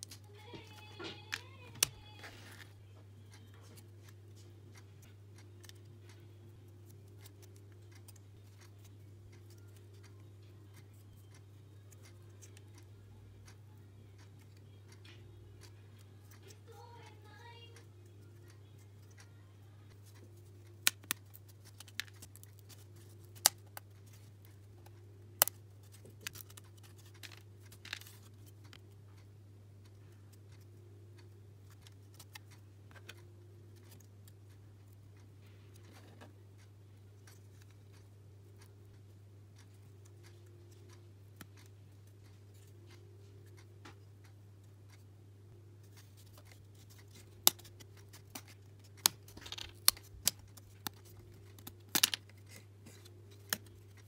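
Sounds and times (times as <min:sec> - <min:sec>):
steady low hum: 0:00.0 - 0:54.0
plywood pieces clicking and snapping: 0:46.3 - 0:52.6.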